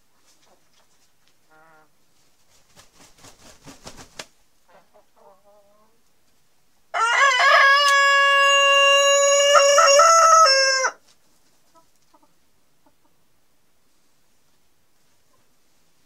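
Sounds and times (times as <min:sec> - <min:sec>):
rooster crowing: 0:06.9 - 0:11.0.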